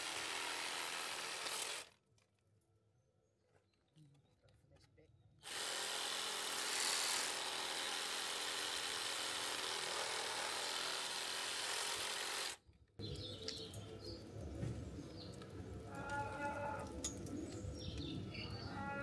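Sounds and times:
power saw cutting: 0.0 - 1.9, 5.4 - 12.6.

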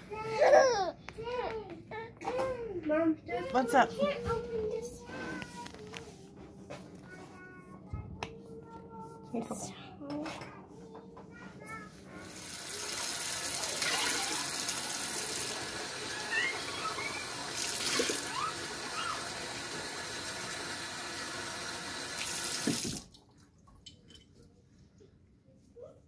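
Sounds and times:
water splashing on plastic cup: 17.4 - 18.5
tap running into steel sink: 22.3 - 23.1.

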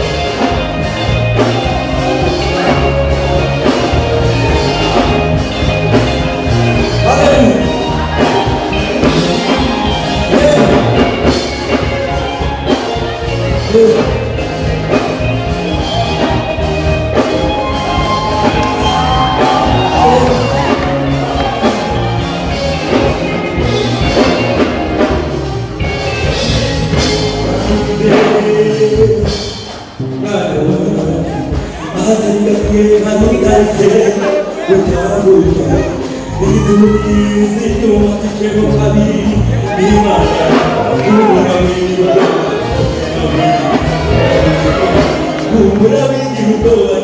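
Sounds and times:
drums steady beat: 0.0 - 47.0
live band playing: 0.0 - 47.0
choir singing through microphones: 39.7 - 47.0.

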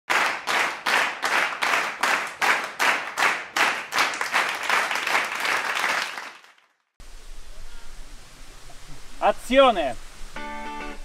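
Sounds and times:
rhythmic hand clapping: 0.1 - 6.7.

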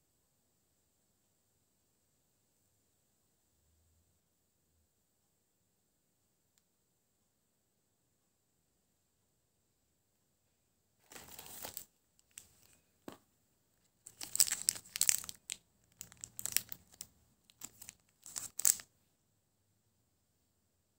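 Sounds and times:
foil wrapper crinkling: 11.1 - 12.7, 14.0 - 18.8.

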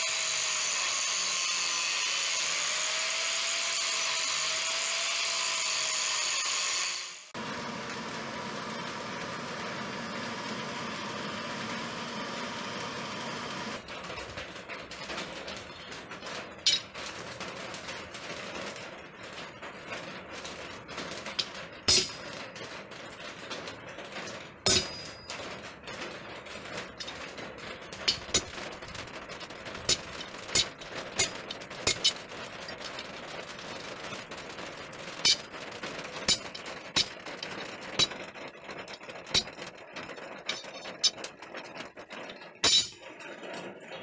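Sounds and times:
angle grinder cutting steel: 0.0 - 13.8.

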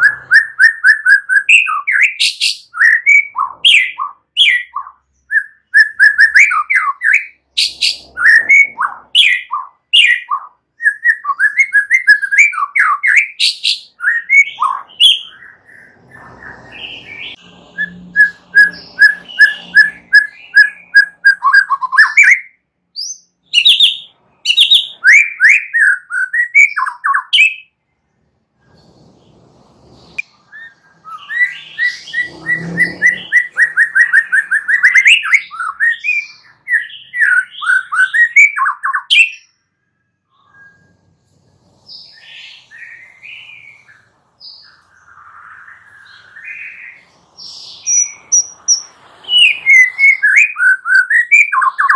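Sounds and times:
songbird singing loudly: 0.0 - 27.8, 30.0 - 39.6, 41.8 - 51.9.

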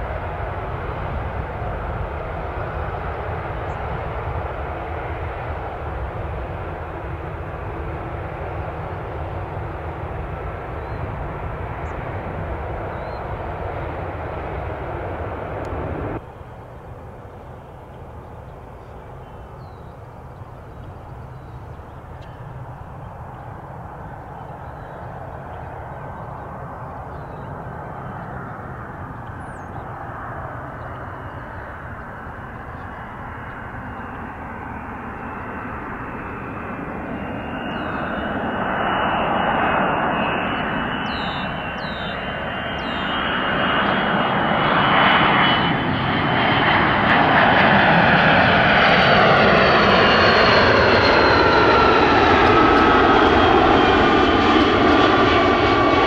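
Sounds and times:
aircraft engine rush: 0.0 - 56.0.

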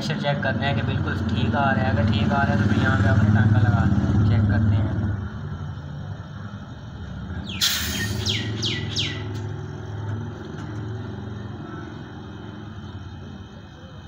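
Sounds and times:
bird chirping: 6.2 - 14.0.

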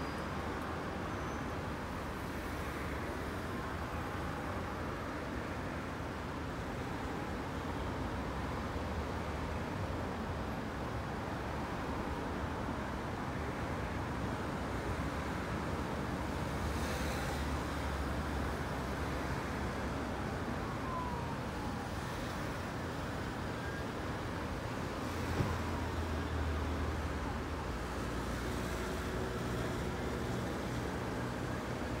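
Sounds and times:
distant siren wailing: 19.2 - 26.9.

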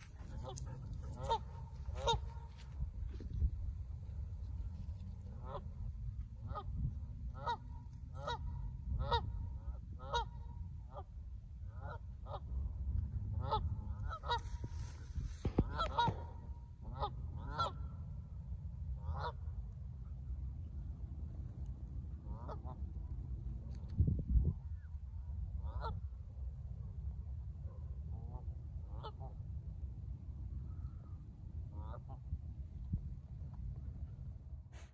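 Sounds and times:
geese honking: 0.0 - 2.7, 7.3 - 11.1, 13.4 - 17.9, 19.0 - 19.4.

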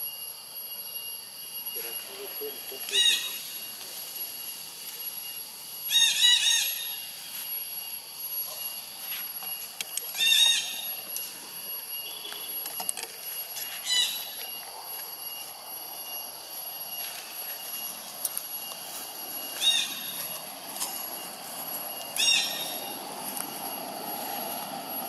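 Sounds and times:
macaque squeaky calls: 2.5 - 3.4, 5.9 - 7.0, 10.1 - 10.9, 13.8 - 14.4, 19.6 - 20.2, 22.2 - 22.9.

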